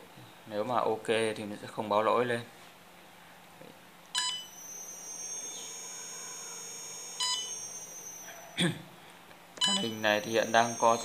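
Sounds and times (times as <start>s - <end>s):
high-pitched whine: 4.2s - 8.7s, 9.6s - 11.0s
short electronic beep: 9.6s - 11.0s.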